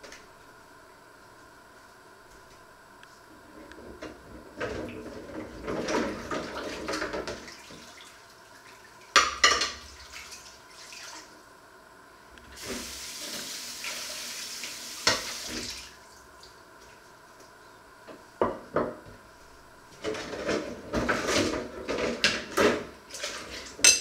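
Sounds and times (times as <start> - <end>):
dishes clinking: 9.2 - 9.8, 23.8 - 24.0.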